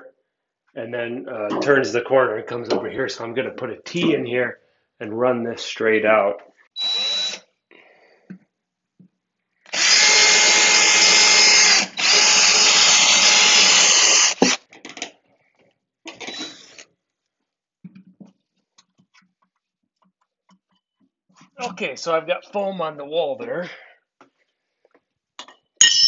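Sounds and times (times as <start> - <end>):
cordless drill boring: 6.8 - 7.4, 9.7 - 14.6, 16.1 - 16.8.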